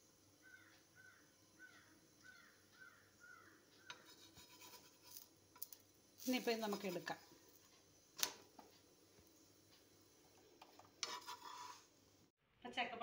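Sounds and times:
faint chirping call: 0:00.4 - 0:04.1
metal spatula scraping pan: 0:03.9 - 0:05.2, 0:06.3 - 0:07.2, 0:10.7 - 0:11.9.

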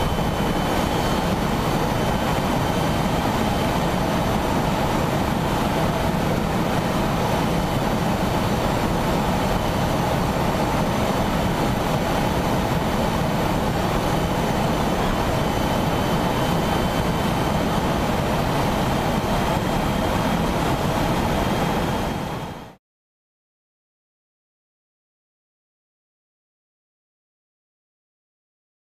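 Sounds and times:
faint high whine: 0:00.0 - 0:22.8.

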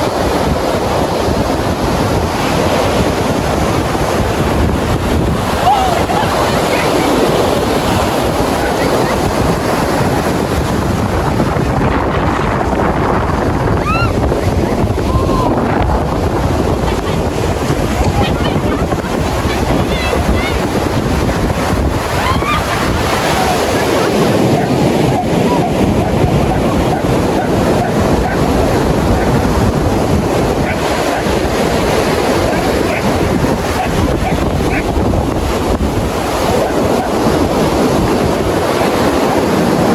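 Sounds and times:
surf breaking on beach: 0:00.0 - 0:39.9
wind buffeting microphone: 0:00.0 - 0:39.9.

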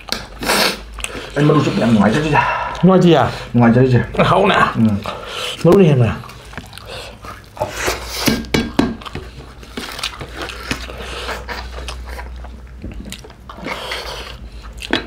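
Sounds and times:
wet smacks and clicks: 0:00.0 - 0:01.2
people chewing and slurping: 0:00.0 - 0:15.0.

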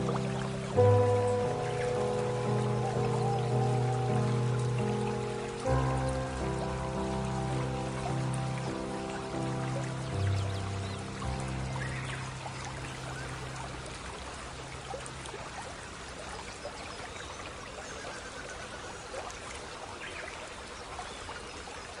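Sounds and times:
held low musical note: 0:00.0 - 0:15.6
water drips: 0:00.0 - 0:22.0
water trickling and splashing: 0:00.0 - 0:22.0.

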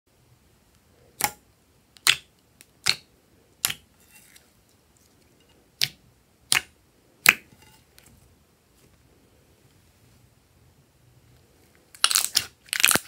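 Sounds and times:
fingers squeezing slime: 0:02.0 - 0:03.9.

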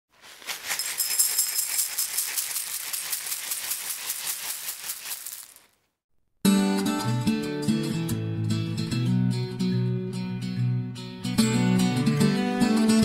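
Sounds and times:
rattle of small hard pieces: 0:00.2 - 0:05.8
acoustic guitar music: 0:06.5 - 0:13.0.

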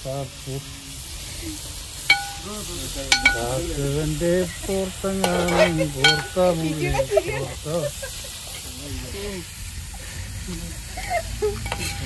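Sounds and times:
food sizzling: 0:00.0 - 0:12.0
food stirred in a pan: 0:00.6 - 0:12.0
spoon knocking against pan: 0:02.1 - 0:02.5, 0:03.1 - 0:03.5, 0:05.2 - 0:06.6, 0:11.6 - 0:12.0
person speaking: 0:02.2 - 0:07.6.

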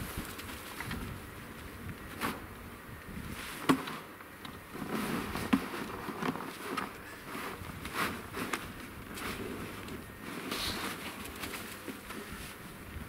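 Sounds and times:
snow scoop crunching and scraping: 0:04.7 - 0:12.6.

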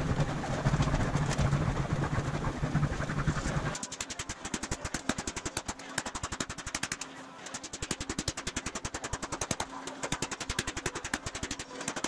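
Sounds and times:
mallet beating aluminium sheet: 0:03.8 - 0:12.0.

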